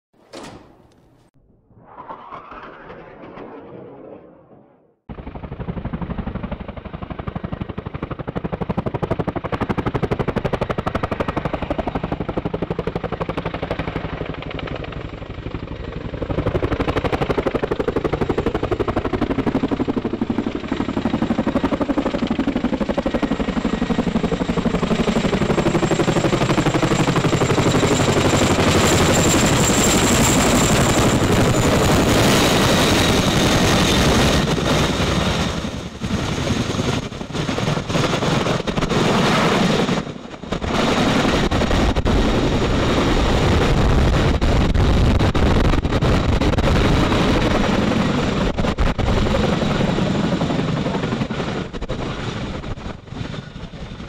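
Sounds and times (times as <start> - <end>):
high whine: 1.4 - 5.0.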